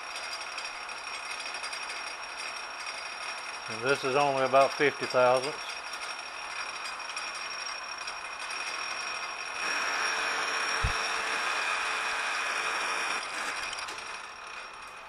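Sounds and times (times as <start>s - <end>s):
metal lathe spindle whine: 0.0s - 15.0s
low thump: 10.8s - 11.1s.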